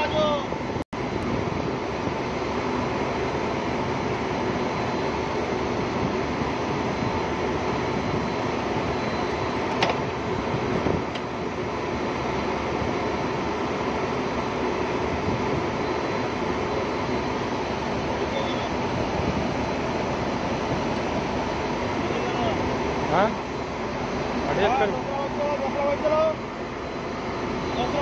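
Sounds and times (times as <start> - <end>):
standing trains noise: 0.0 - 28.0.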